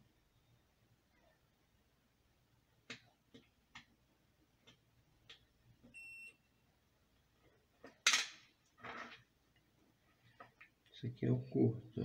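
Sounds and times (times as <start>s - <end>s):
multimeter continuity beep: 5.9s - 6.5s.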